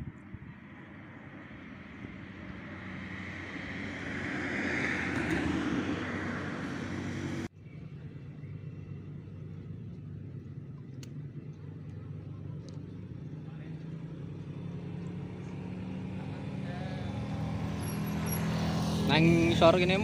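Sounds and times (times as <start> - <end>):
vehicle passing by: 0.4 - 7.9, 11.7 - 20.0.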